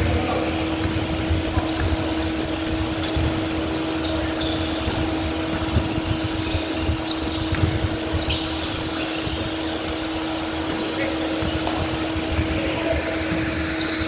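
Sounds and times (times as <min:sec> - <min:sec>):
steady hum: 0:00.0 - 0:14.0
sneakers squeaking: 0:00.1 - 0:14.0
basketball dribbling on hardwood: 0:04.8 - 0:08.4.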